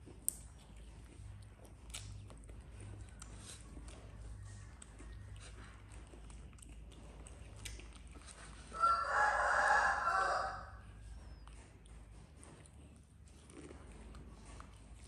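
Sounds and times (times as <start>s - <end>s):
rooster crowing: 8.7s - 10.8s.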